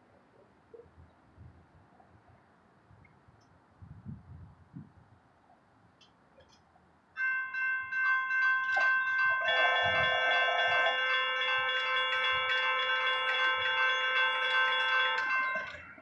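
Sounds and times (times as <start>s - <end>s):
electronic crossing bells ringing: 7.2s - 16.0s.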